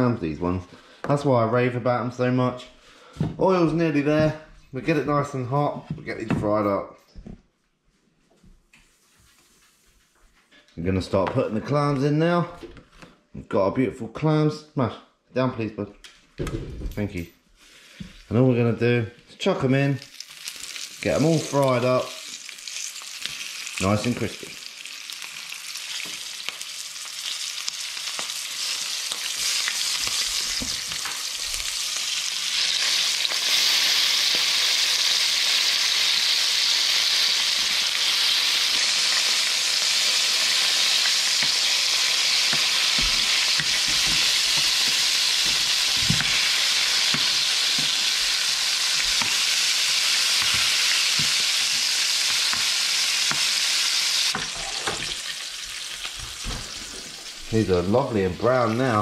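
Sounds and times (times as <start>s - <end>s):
clams sizzling in hot oil: 20.0s - 57.4s.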